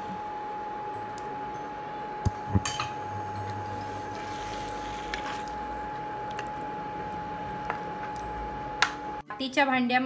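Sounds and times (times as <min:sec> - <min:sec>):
wet stirring: 0:03.5 - 0:06.6.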